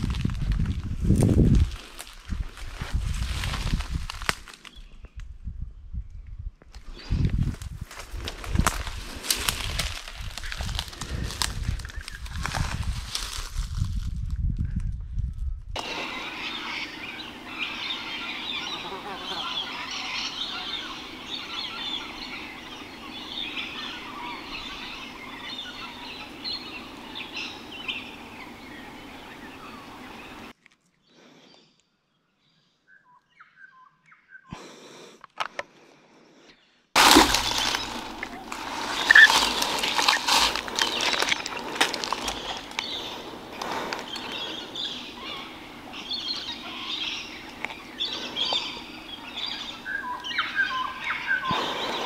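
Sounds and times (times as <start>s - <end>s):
steady outdoor background: 0.0s - 33.1s, 33.9s - 52.0s
birds calling: 15.8s - 30.5s, 36.5s - 52.0s.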